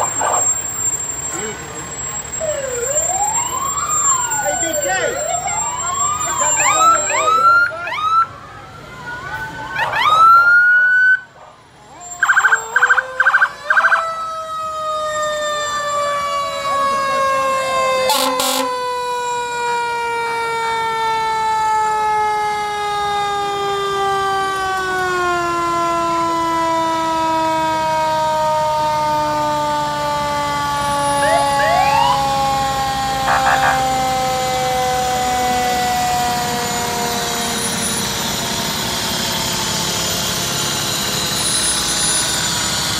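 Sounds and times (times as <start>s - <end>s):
electronic siren yelping: 0.0s - 8.3s, 9.0s - 19.6s, 30.6s - 38.5s
siren tone falling in pitch: 11.9s - 19.4s, 30.4s - 42.7s
fire truck horn blasts: 18.0s - 19.1s, 28.8s - 38.0s.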